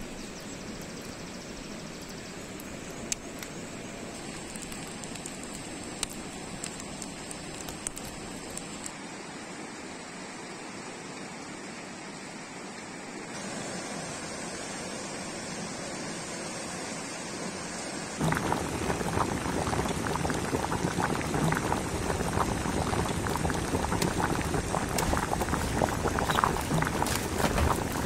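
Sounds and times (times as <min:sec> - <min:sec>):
wood fire crackling and sizzling: 0:02.0 - 0:09.0, 0:18.2 - 0:28.0
stream rushing: 0:07.2 - 0:28.0.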